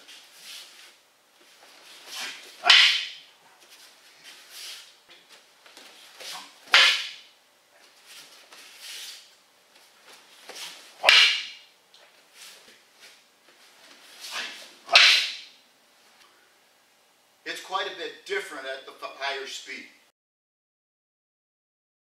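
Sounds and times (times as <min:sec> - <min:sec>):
wooden sticks clacking together: 0:02.6 - 0:03.2.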